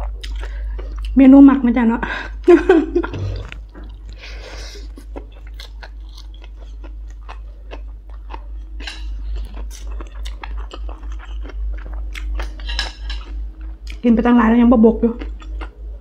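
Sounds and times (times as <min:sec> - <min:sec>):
chewing noodles: 0:00.0 - 0:01.2, 0:03.4 - 0:14.1, 0:15.2 - 0:16.0.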